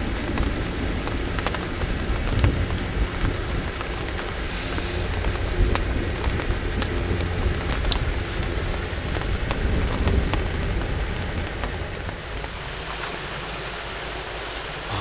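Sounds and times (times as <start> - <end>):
rain on fabric shelter: 0.0 - 15.0
low rumble: 4.5 - 11.4.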